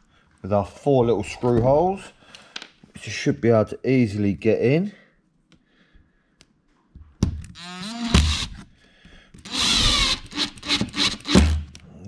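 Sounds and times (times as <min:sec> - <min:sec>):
cordless driver motor whining: 0:07.5 - 0:08.6, 0:09.4 - 0:11.7.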